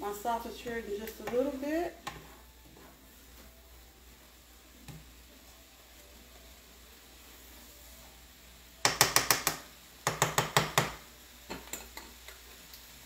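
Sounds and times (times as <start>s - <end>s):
utensil knocking on skillet rim: 8.8s - 11.9s.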